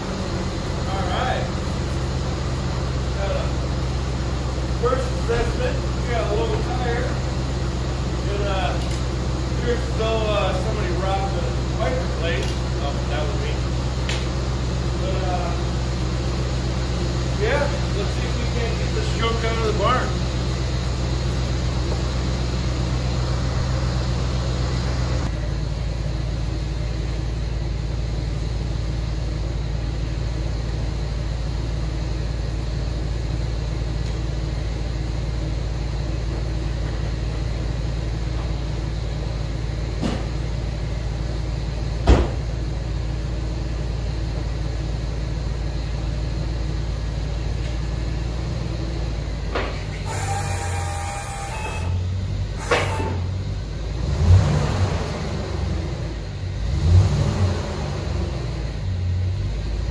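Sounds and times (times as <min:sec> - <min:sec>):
truck engine idling: 0:00.0 - 0:59.9
sharp knock: 0:42.1 - 0:42.4.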